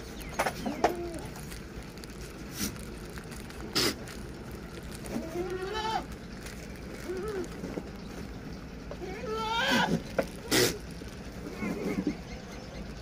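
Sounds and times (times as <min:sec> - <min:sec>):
goats bleating: 0:05.2 - 0:06.1, 0:09.0 - 0:10.6.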